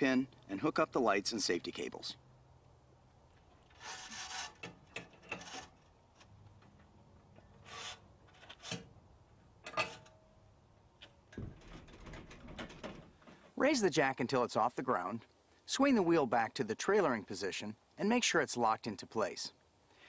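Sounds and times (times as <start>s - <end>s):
trailer hitch metal scrapes and clinks: 3.6s - 6.3s, 7.3s - 8.9s, 9.6s - 10.2s.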